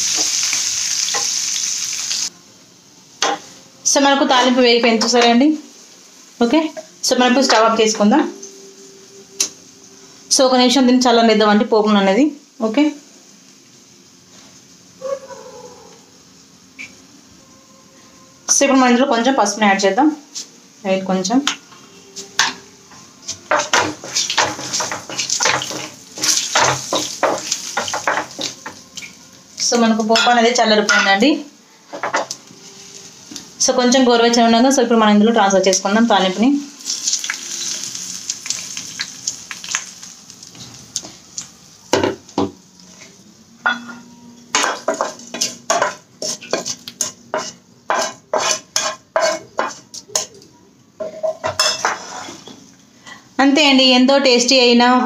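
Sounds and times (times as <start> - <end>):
spoon stirring and scraping pan: 21.5 - 31.2, 42.8 - 50.4, 51.0 - 52.7
spoon knocking against pan: 23.5 - 29.1.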